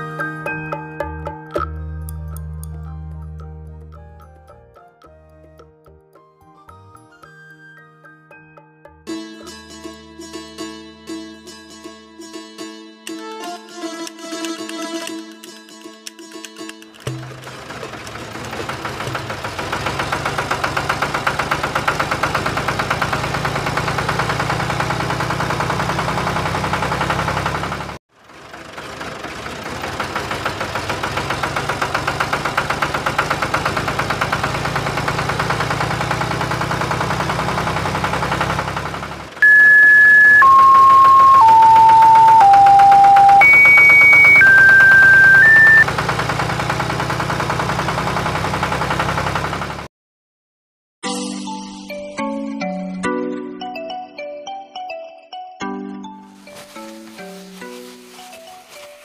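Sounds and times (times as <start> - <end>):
chugging engine ticking: 17.1 - 49.9
electronic beeps: 39.4 - 45.8.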